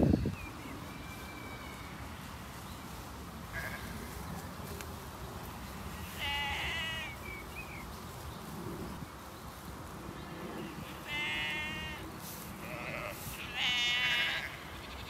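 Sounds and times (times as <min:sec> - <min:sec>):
steady outdoor hiss: 0:00.0 - 0:15.0
sheep bleating: 0:03.5 - 0:04.2, 0:05.5 - 0:07.2, 0:10.6 - 0:12.0, 0:12.6 - 0:15.0.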